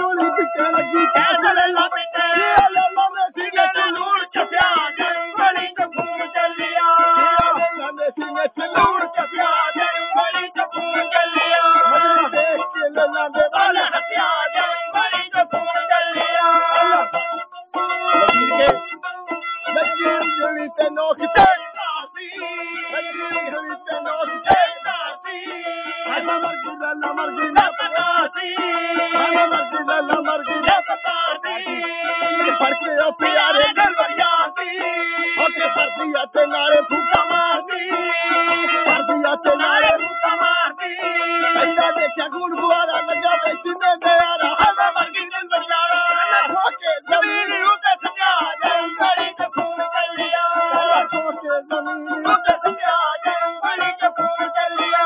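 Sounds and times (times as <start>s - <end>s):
man singing: 0.0s - 55.0s
musical accompaniment: 0.0s - 55.0s
hand drum beats: 17.8s - 19.0s.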